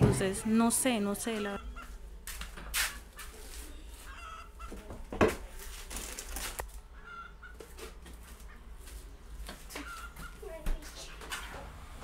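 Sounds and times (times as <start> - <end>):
chickens clucking: 0.0 - 2.0, 2.6 - 5.0, 6.8 - 8.8, 9.7 - 11.6.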